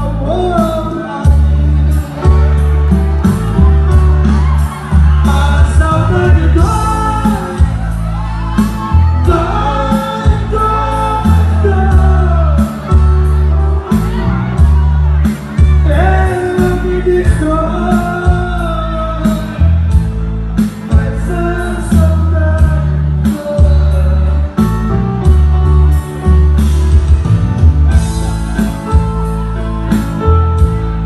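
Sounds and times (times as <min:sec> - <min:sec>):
person singing: 0:00.0 - 0:27.2
live band music: 0:00.0 - 0:31.0.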